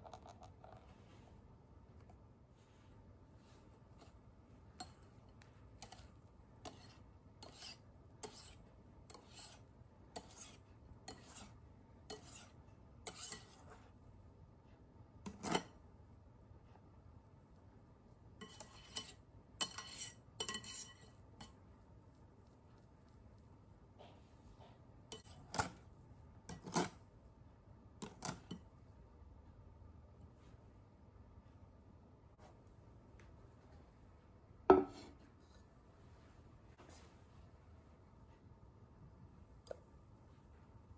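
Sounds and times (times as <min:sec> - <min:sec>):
wire whisk strokes in glass bowl: 0:04.8 - 0:14.0, 0:18.4 - 0:21.6.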